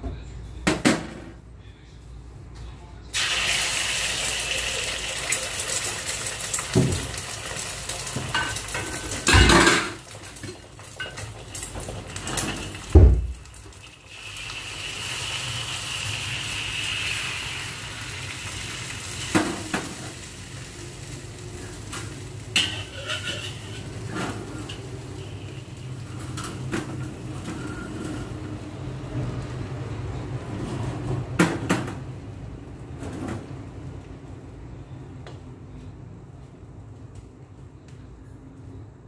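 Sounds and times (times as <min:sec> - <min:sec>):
egg sizzling in a wok: 0:03.2 - 0:28.4.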